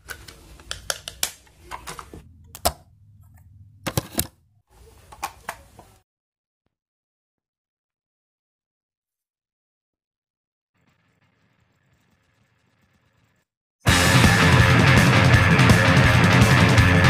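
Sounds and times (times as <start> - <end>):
plastic clicks and snaps: 0.0 - 2.8.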